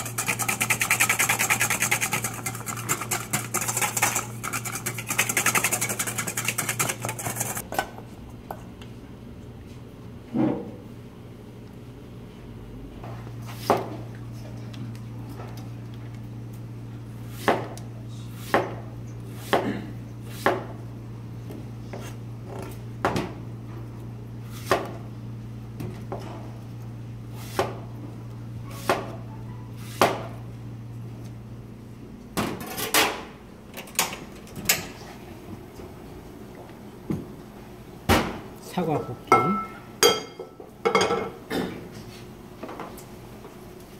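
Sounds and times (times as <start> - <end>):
steady low hum: 0.0 - 29.6.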